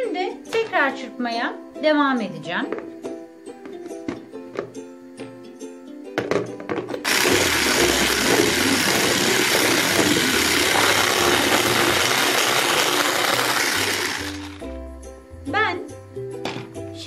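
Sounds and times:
electric hand blender whisking: 7.0 - 14.6.

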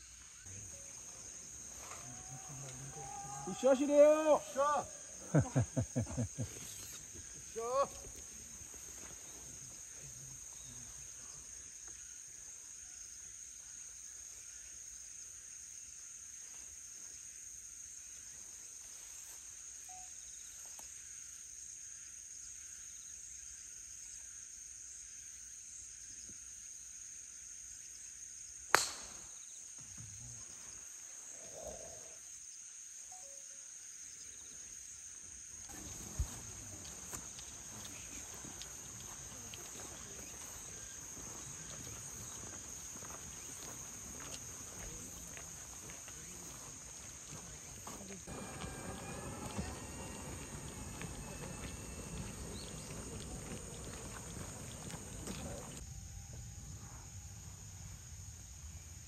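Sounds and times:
insects buzzing: 0.0 - 59.0
golf club striking ball: 28.8 - 29.2.

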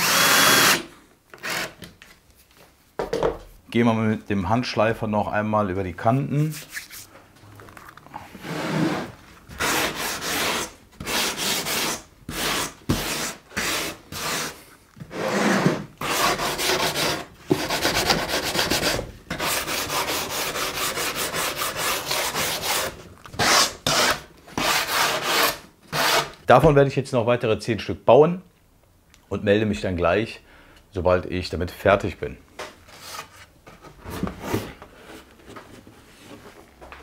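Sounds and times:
sandpaper rasping on wood: 8.4 - 26.3.

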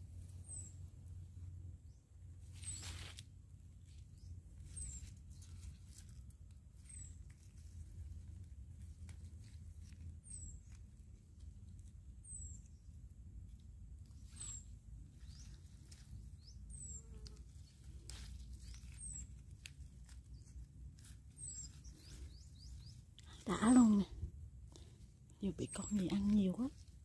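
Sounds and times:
leaves rustling and stems snapping: 2.5 - 4.0, 4.6 - 12.7, 15.1 - 24.0, 25.5 - 27.0.

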